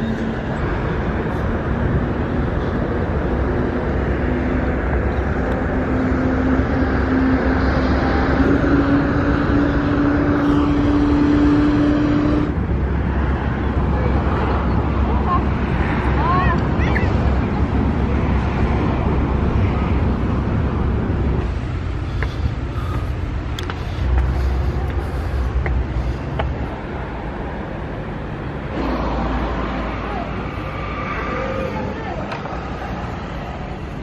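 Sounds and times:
traffic rumbling past: 0.0 - 34.0
faint voices: 29.6 - 33.2.

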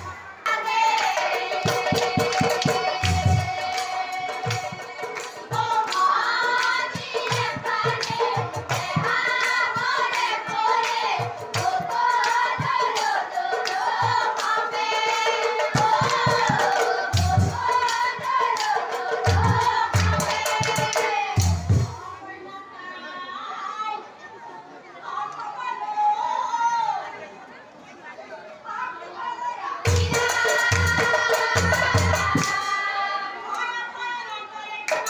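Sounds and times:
drum beats: 0.0 - 22.2, 29.9 - 32.9
women singing together: 0.0 - 24.2, 28.6 - 35.0
hand clapping: 4.5 - 8.2.

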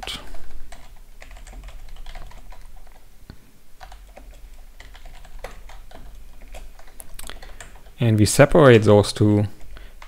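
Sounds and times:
keyboard typing: 0.0 - 3.1, 3.8 - 8.9.

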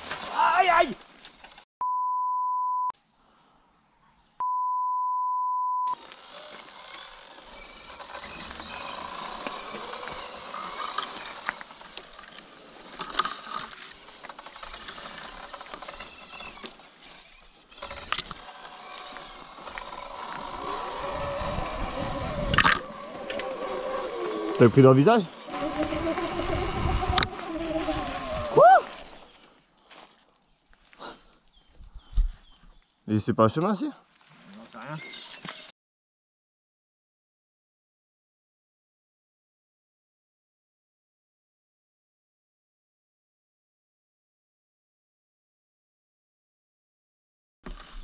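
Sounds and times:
branches rustling and scraping: 0.0 - 1.7, 6.0 - 33.1, 33.7 - 35.7
electric dirt bike riding: 0.0 - 1.7, 5.9 - 29.5, 47.7 - 48.0
censor bleeps: 1.8 - 2.9, 4.4 - 6.0.

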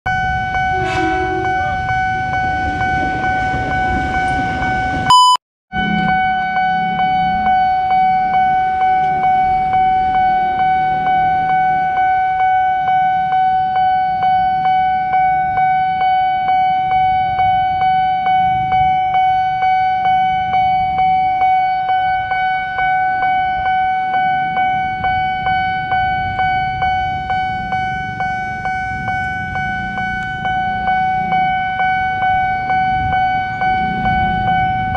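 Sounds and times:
low traffic rumble: 5.8 - 34.9.

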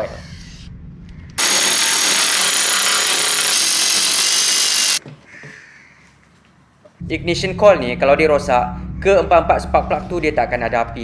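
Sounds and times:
electric ratchet whining: 1.4 - 5.0.

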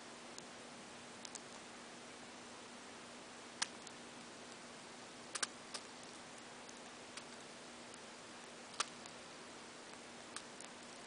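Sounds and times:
budgerigar beak clicks: 5.3 - 5.9.

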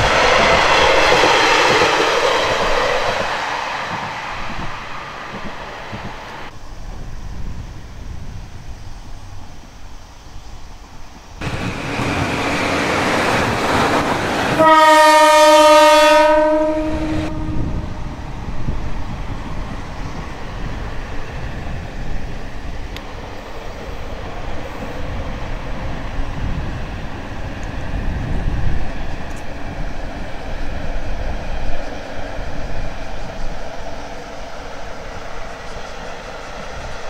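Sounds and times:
train running rumble: 0.0 - 37.0
train horn blast: 14.5 - 18.1.

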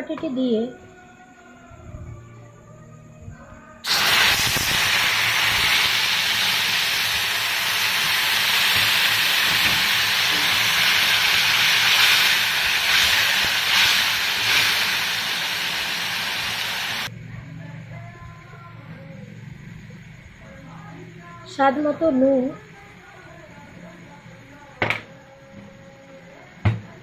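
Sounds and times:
spice paste sizzling in hot oil: 3.9 - 17.1.

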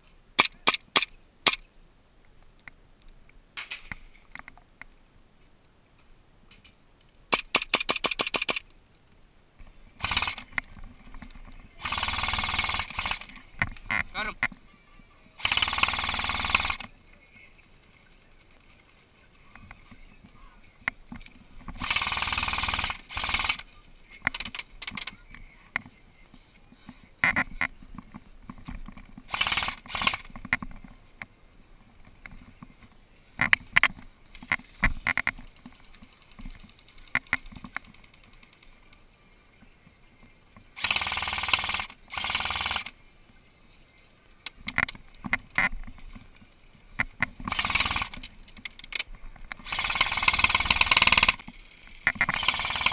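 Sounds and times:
sharp clicks and knocks: 6.5 - 8.7, 24.2 - 25.9, 44.4 - 52.9
airsoft guns firing full-auto: 10.0 - 10.5, 11.8 - 13.3, 15.4 - 16.9, 21.8 - 23.7, 29.3 - 30.3, 40.8 - 42.9, 47.5 - 48.2, 49.6 - 51.4, 52.3 - 52.9.

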